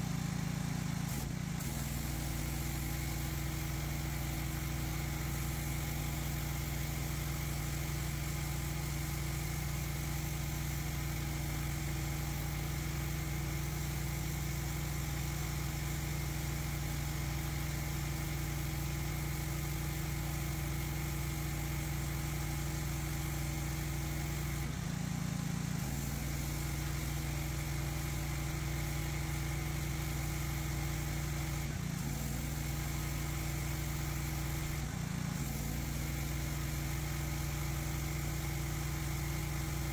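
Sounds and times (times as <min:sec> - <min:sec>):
pressure washer motor drone: 0:00.0 - 0:39.9
water jet hissing on concrete: 0:00.8 - 0:24.7.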